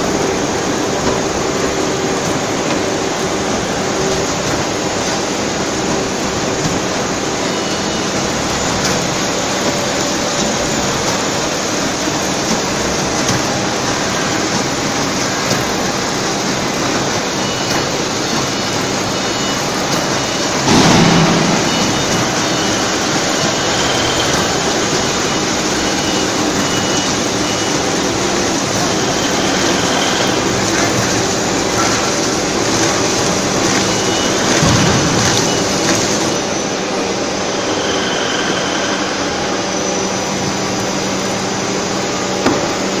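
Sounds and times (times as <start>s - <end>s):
mill machinery din: 0.0s - 40.8s
low motor hum: 20.6s - 23.4s.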